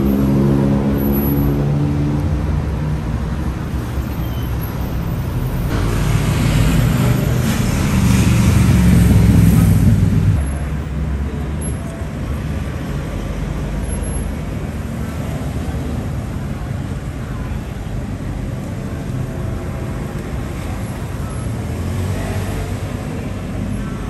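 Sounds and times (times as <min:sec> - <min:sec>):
road traffic: 0:00.0 - 0:24.0
vehicle passing: 0:04.8 - 0:10.4.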